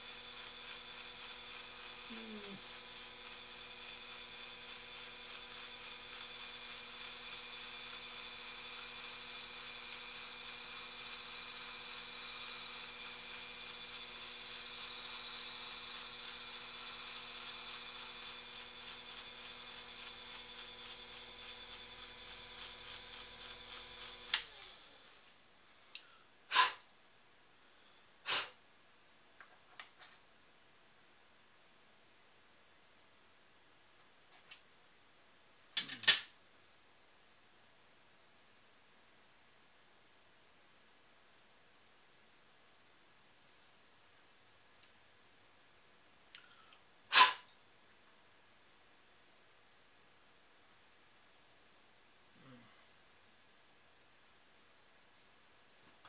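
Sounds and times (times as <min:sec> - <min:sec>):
metal lathe motor humming: 0:00.0 - 0:25.2
motor winding down: 0:00.0 - 0:25.3.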